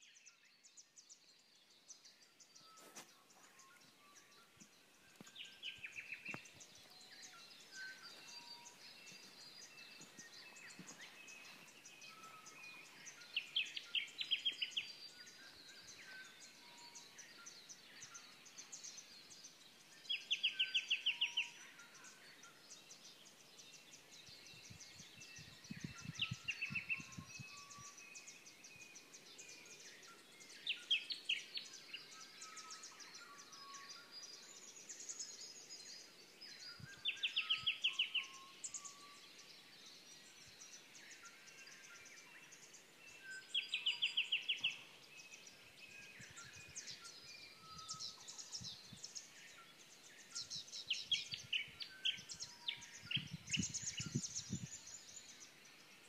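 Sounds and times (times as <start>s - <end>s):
birds chirping and whistling: 0.0s - 55.8s.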